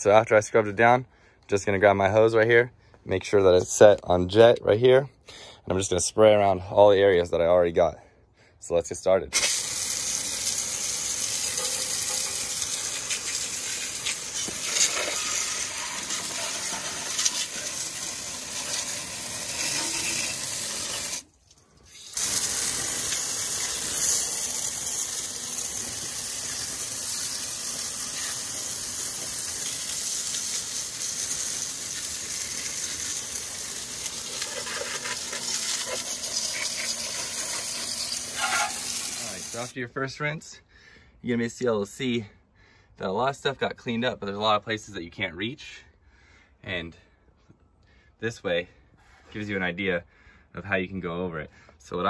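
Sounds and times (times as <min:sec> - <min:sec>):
hose water spraying engine: 0:09.4 - 0:39.8.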